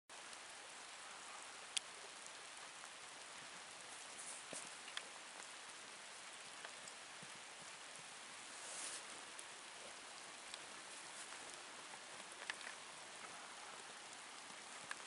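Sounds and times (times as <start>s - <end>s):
background hiss: 0.1s - 15.0s
faint ticks: 0.1s - 15.0s.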